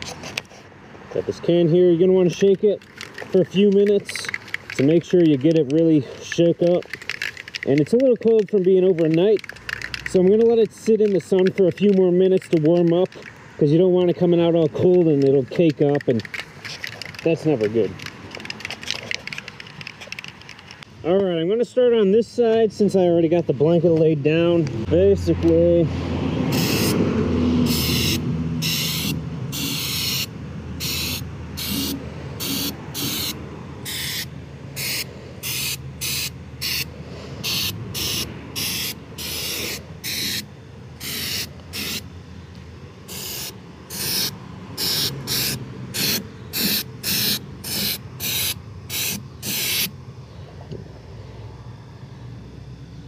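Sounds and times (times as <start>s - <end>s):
aerosol spray hissing bursts: 26.5s - 27.0s, 27.6s - 42.0s, 43.1s - 49.9s.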